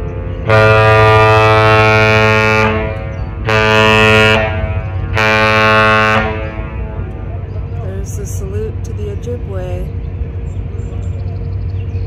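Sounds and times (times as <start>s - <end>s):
ship horn blasts: 0.0s - 8.0s.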